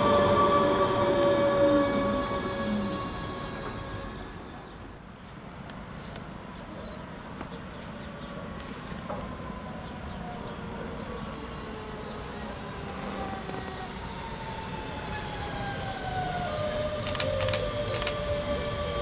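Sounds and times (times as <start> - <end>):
electric train drive whining: 0.0 - 4.7.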